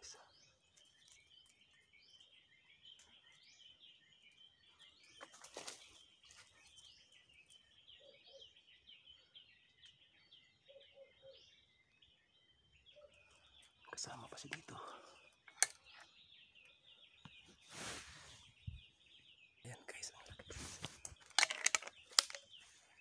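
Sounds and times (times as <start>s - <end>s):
small birds chirping: 0.0s - 23.0s.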